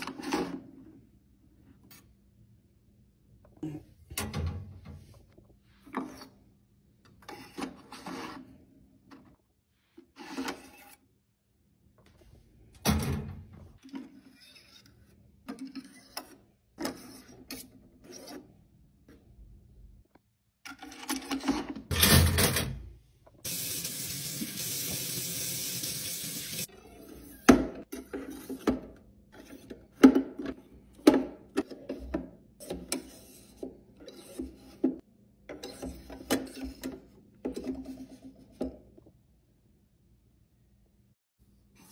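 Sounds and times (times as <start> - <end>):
tap water running: 23.4 - 26.7.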